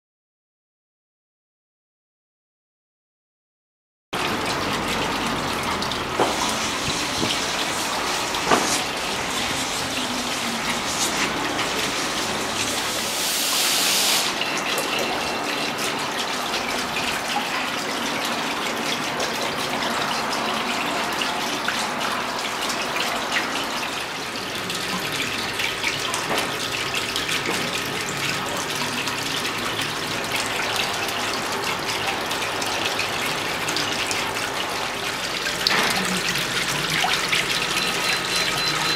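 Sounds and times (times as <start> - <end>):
fountain water splashing into basin: 4.2 - 38.9
loud hiss: 13.0 - 14.3.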